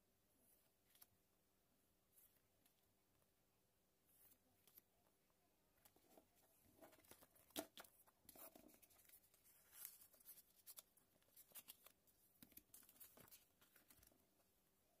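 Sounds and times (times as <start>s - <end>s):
faint rustling of sticker sheets: 4.0s - 14.6s.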